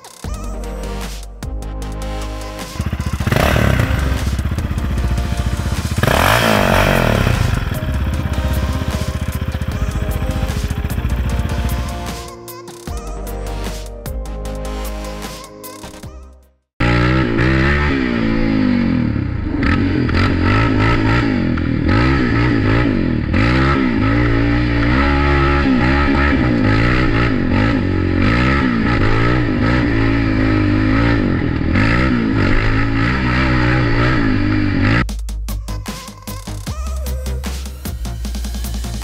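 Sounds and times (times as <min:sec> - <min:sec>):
atv engine revving: 0:02.3 - 0:12.3, 0:16.8 - 0:35.1.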